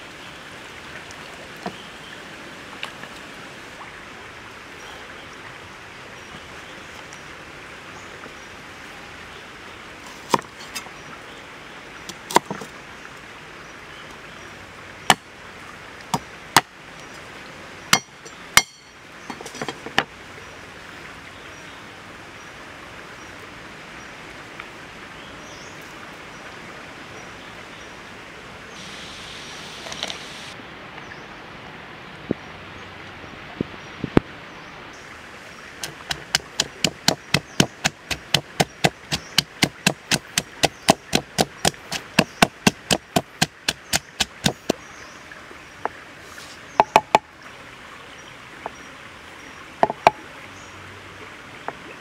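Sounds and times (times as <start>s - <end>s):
flowing water: 0.0s - 52.0s
cleaver chopping on wooden board: 12.2s - 12.6s, 18.0s - 19.7s, 35.8s - 44.8s, 49.8s - 50.2s.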